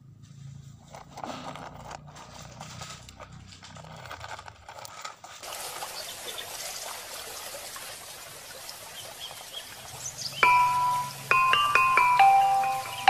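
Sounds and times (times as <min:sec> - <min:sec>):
faint high chirps: 0:10.0 - 0:13.0
mallet percussion chime tune: 0:10.4 - 0:13.0.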